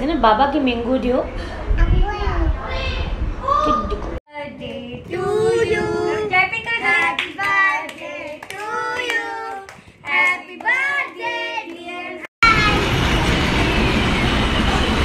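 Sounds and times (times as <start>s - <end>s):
women and children singing: 4.3s - 12.3s.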